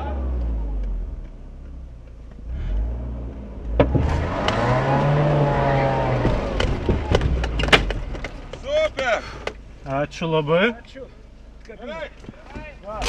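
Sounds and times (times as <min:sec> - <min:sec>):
car engine revving: 0:00.0 - 0:13.0
sharp knocks: 0:06.0 - 0:08.7.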